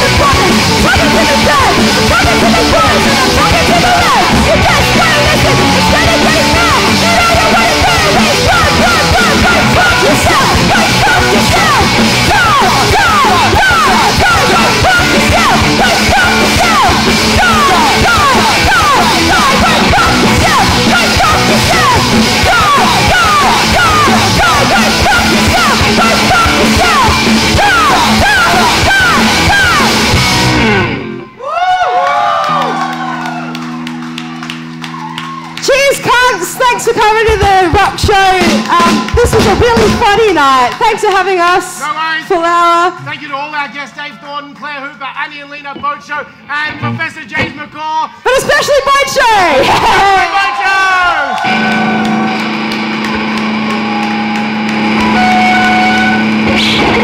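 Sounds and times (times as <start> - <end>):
person yelling singing: 0.0 - 30.8
punk rock band playing live: 0.0 - 31.4, 33.2 - 41.7, 51.3 - 57.0.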